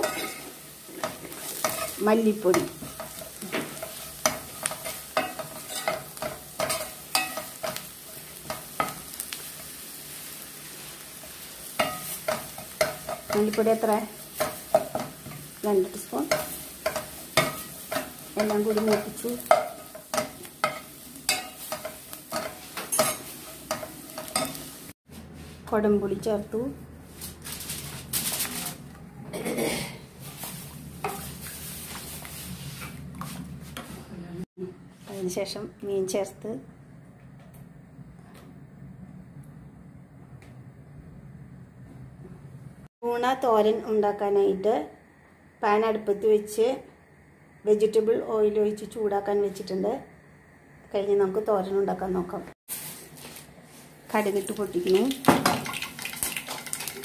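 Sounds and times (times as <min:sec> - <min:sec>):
spoon scraping a pan: 0:00.0 - 0:24.8, 0:30.3 - 0:32.1
hot oil sizzling: 0:00.0 - 0:25.0, 0:30.0 - 0:33.0, 0:43.4 - 0:57.0
spoon clinking against pan: 0:04.2 - 0:07.8, 0:16.3 - 0:24.6.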